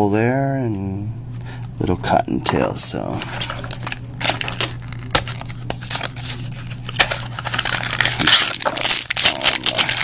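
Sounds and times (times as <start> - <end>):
foil bag crinkling: 3.3 - 10.0.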